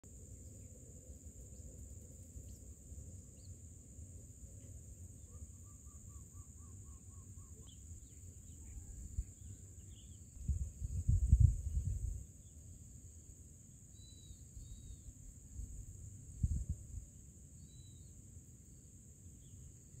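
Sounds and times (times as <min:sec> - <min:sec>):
insect buzz: 0:00.1 - 0:20.0
faint bird chirps: 0:00.3 - 0:03.7, 0:04.5 - 0:11.4, 0:13.9 - 0:15.5, 0:17.6 - 0:20.0.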